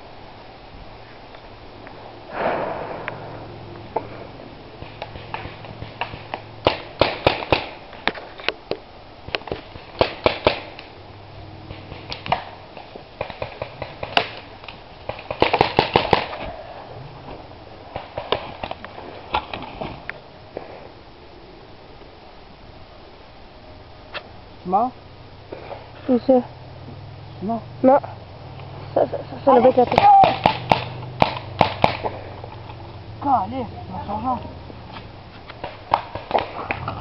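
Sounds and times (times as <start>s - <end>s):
paintball guns popping: 4.8s - 8.2s, 9.3s - 10.9s, 11.7s - 16.4s, 17.9s - 19.7s, 29.9s - 32.7s, 35.5s - 37.0s.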